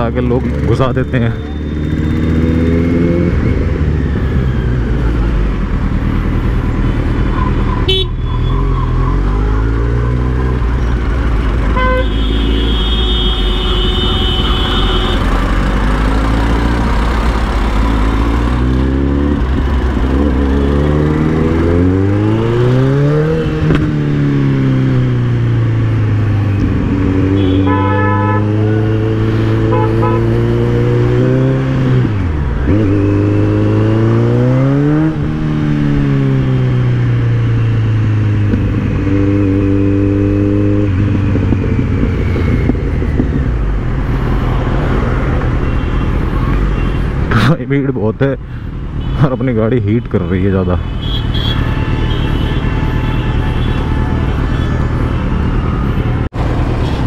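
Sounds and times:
motorcycle engine revving: 0:00.0 - 0:12.8, 0:13.8 - 0:47.0
vehicle horns tooting: 0:07.8 - 0:08.7, 0:11.5 - 0:15.4, 0:27.3 - 0:28.7, 0:29.6 - 0:30.5, 0:49.0 - 0:57.0.

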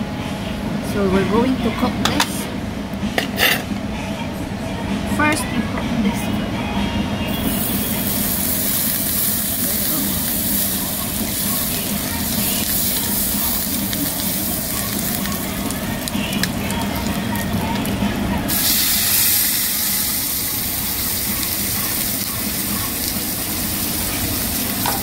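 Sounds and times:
fat sizzling: 0:07.3 - 0:25.0
steak sizzling on hot stone: 0:07.4 - 0:17.4, 0:18.5 - 0:25.0.

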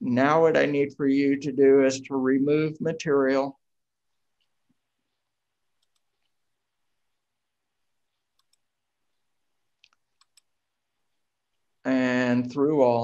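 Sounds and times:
computer mouse clicks: 0:05.7 - 0:06.4, 0:08.1 - 0:08.7, 0:09.8 - 0:10.6.

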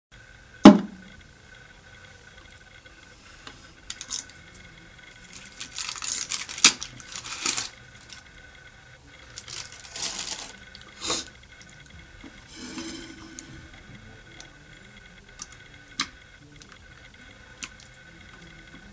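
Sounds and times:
aluminium foil crinkling and tearing: 0:03.9 - 0:04.4, 0:05.2 - 0:08.2, 0:09.2 - 0:10.8.

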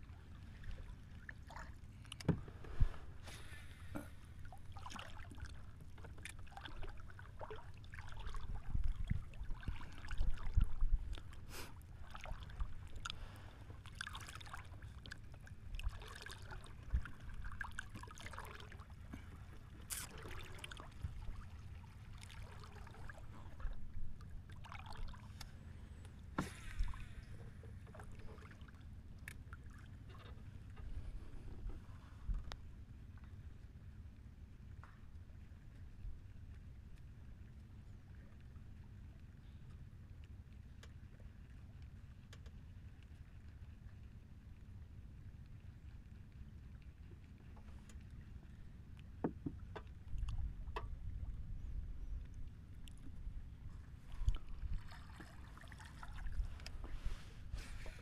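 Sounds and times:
low steady rumble: 0:00.0 - 0:58.0
knocks and clicks on wooden boat: 0:02.2 - 0:02.6, 0:49.2 - 0:50.0, 0:50.7 - 0:51.0.

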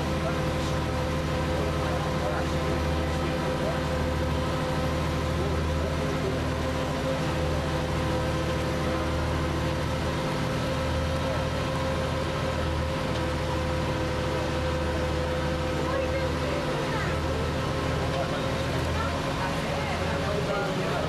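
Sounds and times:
bus diesel engine drone: 0:00.0 - 0:21.0.

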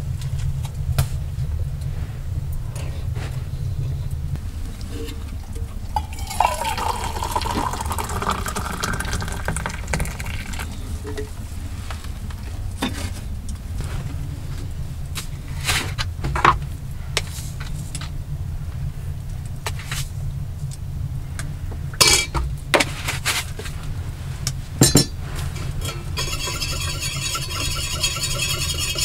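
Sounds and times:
steady low rumble: 0:00.0 - 0:26.2
ringing metallic scraping: 0:24.8 - 0:29.0
metal spoon clinking on steel mug: 0:25.8 - 0:29.0.

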